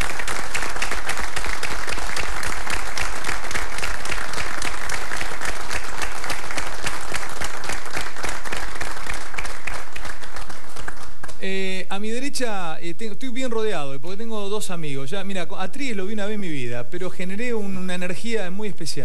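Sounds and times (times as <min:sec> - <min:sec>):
audience applauding: 0:00.0 - 0:11.6.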